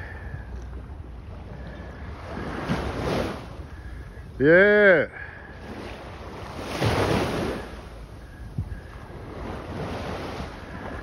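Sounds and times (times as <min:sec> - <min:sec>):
waves washing: 0:00.0 - 0:11.0
wind buffeting microphone: 0:05.5 - 0:11.0.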